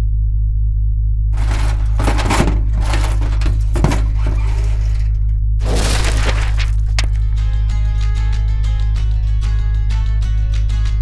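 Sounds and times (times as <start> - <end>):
crackling crunching noise hits: 1.4 - 7.4.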